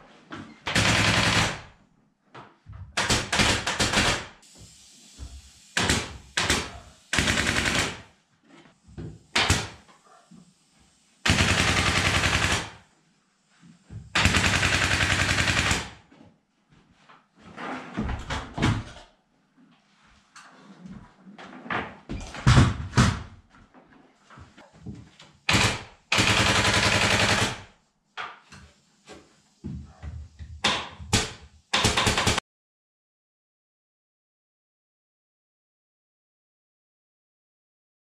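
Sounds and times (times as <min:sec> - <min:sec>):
pneumatic staple gun firing: 0:03.0 - 0:04.4, 0:05.7 - 0:08.1, 0:09.3 - 0:09.9, 0:11.2 - 0:12.8, 0:14.2 - 0:16.0, 0:25.5 - 0:27.7, 0:30.6 - 0:32.4.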